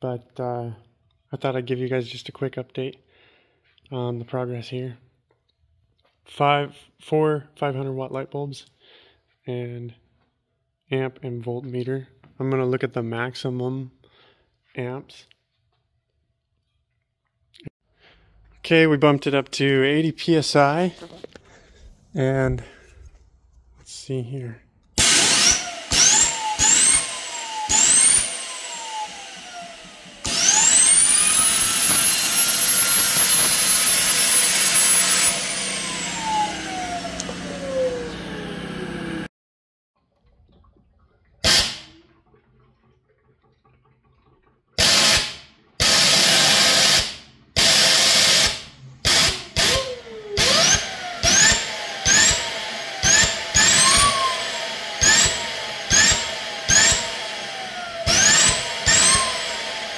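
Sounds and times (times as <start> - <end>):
turbine whine: 25.0 - 39.3, 47.6 - 59.9.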